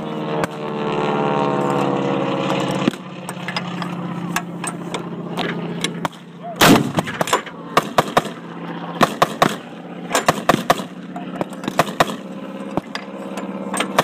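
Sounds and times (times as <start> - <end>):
vehicle engine running: 0.0 - 14.0
gunfire cracks: 6.0 - 8.4, 10.2 - 10.9, 11.6 - 12.2.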